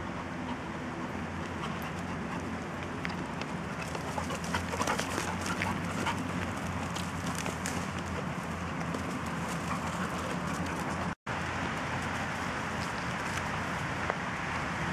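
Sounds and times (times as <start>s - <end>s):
steady background noise: 0.0s - 14.9s
dogs scuffling on leaves: 3.8s - 11.0s.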